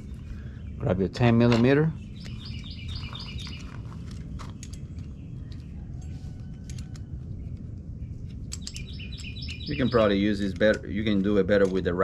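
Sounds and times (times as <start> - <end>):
low background rumble: 0.0 - 12.0
songbird singing: 0.0 - 12.0
metal wrench clicks: 8.5 - 11.9.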